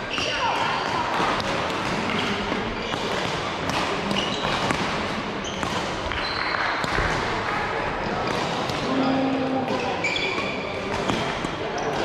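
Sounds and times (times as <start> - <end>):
sports hall background noise: 0.0 - 12.0
shoe squeaks on court floor: 4.1 - 4.8, 5.4 - 6.7, 9.7 - 11.2.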